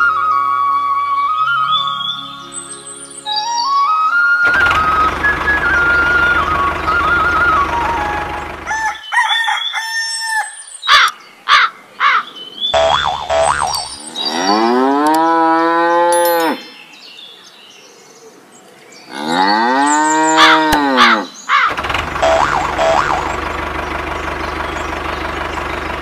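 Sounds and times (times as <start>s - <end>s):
short tones: 4.4s - 8.6s, 12.8s - 14.0s, 21.7s - 23.5s
cow mooing: 12.8s - 16.7s, 19.1s - 21.3s.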